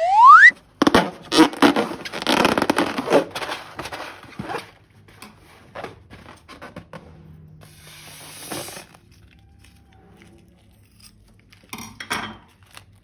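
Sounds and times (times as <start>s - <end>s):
loud rising squeal: 0.0s - 0.5s.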